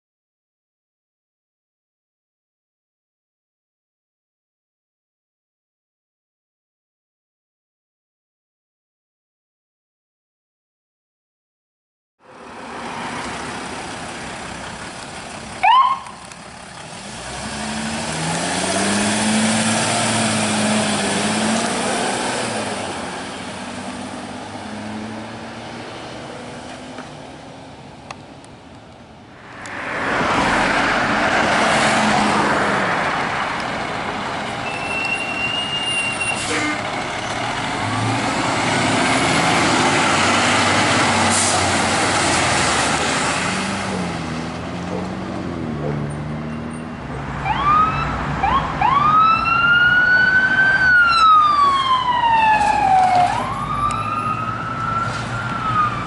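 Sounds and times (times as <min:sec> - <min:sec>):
truck driving past: 0:12.2 - 0:27.6, 0:29.3 - 0:56.0
diesel engines revving: 0:12.2 - 0:56.0
heavy truck road noise: 0:12.2 - 0:56.0.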